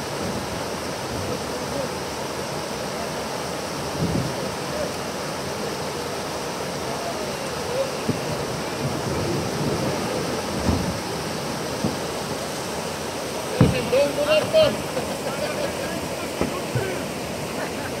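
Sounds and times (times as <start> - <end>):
river rushing over weir: 0.0 - 18.0
low thumps: 13.5 - 15.2.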